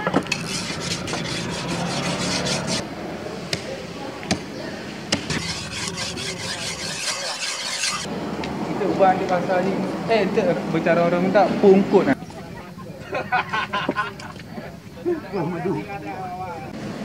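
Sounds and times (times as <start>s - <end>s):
hands scraping wet wooden block: 0.0s - 2.8s, 5.2s - 8.1s.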